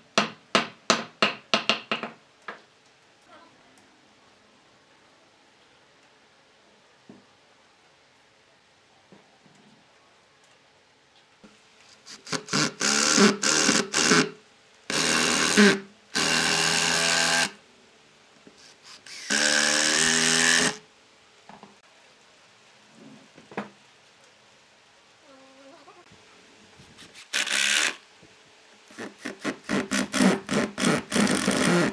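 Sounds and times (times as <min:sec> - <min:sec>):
cordless driver driving screws into wood: 0:14.9 - 0:17.5, 0:19.1 - 0:20.8.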